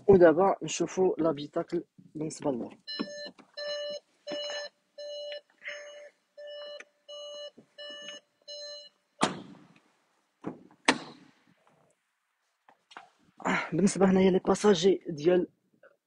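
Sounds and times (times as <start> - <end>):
car warning chime beeping: 2.8 - 9.3
car doors thumping: 9.2 - 9.8, 10.4 - 11.3.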